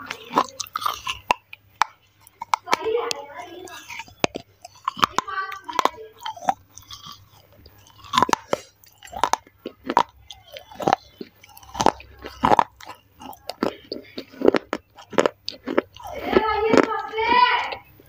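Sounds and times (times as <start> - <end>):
gritty crunching of chewed clay: 0.0 - 18.0.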